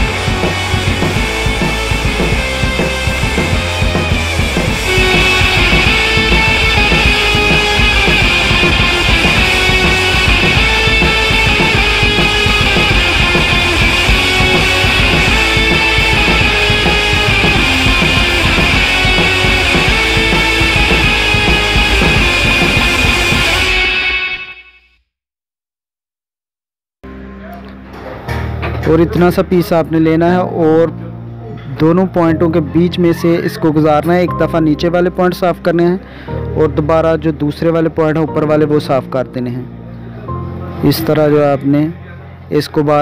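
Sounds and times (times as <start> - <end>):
background music with drums: 0.0 - 24.1.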